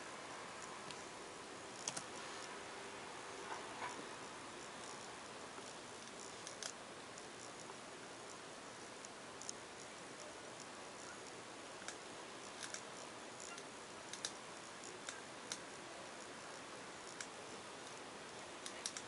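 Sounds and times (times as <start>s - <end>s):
faint steady hiss: 0.0s - 19.0s
computer mouse clicks: 1.8s - 2.1s, 5.6s - 6.8s, 11.8s - 15.7s, 17.0s - 18.0s, 18.6s - 19.0s.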